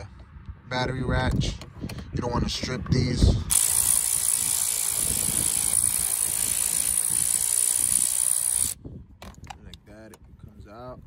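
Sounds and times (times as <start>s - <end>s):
cordless ratchet whining: 3.5s - 8.8s.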